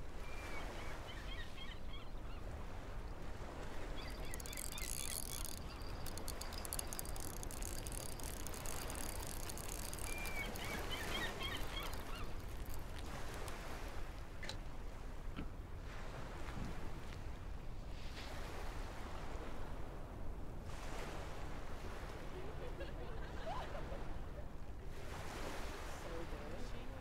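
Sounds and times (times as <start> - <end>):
wind and sea rumble: 0.0 - 27.0
bird calls: 3.9 - 13.5
fishing reel clicking rapidly: 4.0 - 13.7.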